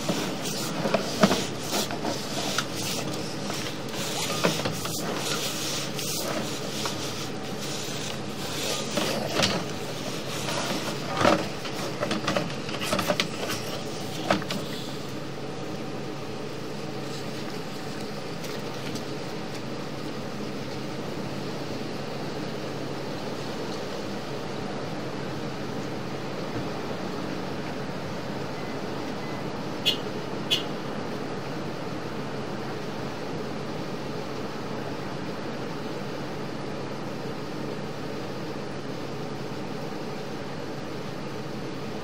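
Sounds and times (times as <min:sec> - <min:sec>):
push rod knocking and scraping: 0:00.0 - 0:14.8
steady mechanical hum: 0:00.0 - 0:42.0.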